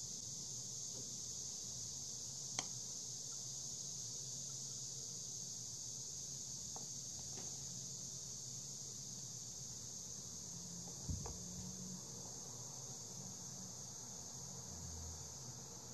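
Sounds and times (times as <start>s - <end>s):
high-pitched hiss: 0.0s - 15.9s
soft knock on cardboard: 11.0s - 11.4s.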